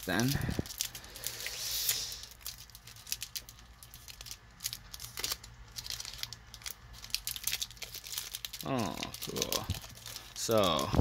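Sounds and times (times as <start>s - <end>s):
foil wrapper crinkling and tearing: 0.0s - 11.0s.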